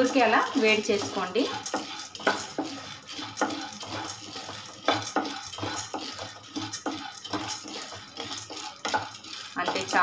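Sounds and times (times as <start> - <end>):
dry lentils rattling in a pan: 0.0 - 10.0
wooden spatula scraping a pan: 0.0 - 10.0.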